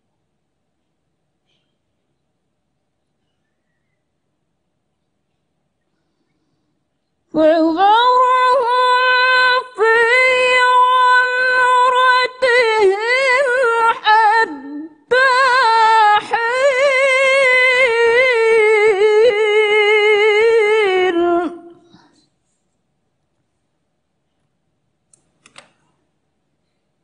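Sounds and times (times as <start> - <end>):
woman reciting melodically: 7.2 - 22.2.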